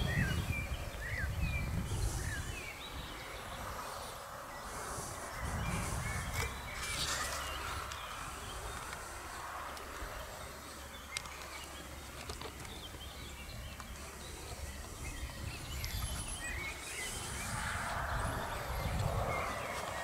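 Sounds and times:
low wind rumble: 0:00.0 - 0:20.0
small birds chirping: 0:00.0 - 0:20.0.

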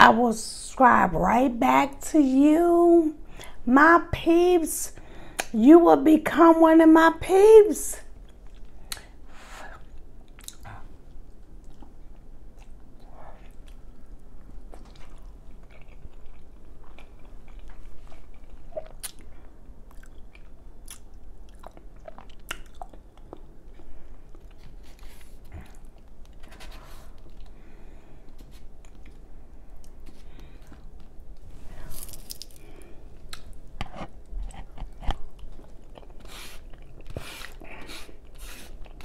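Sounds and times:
chewing noodles: 0:09.8 - 0:26.4
wet mouth clicks and lip smacks: 0:10.3 - 0:10.7, 0:18.8 - 0:19.2, 0:19.9 - 0:23.3.

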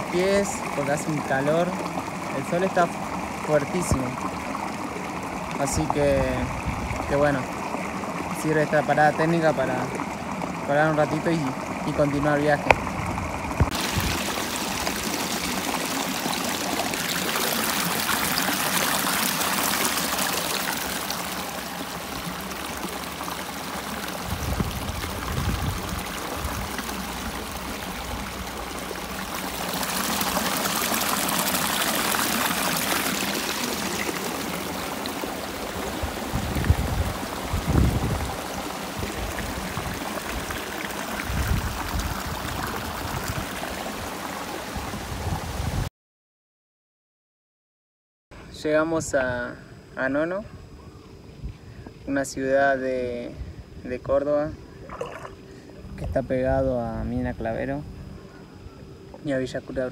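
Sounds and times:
river rushing over rocks: 0:28.9 - 0:44.7.

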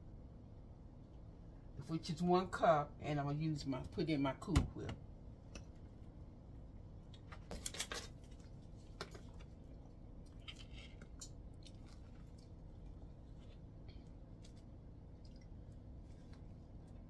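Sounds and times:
soft crackles: 0:08.0 - 0:17.0.

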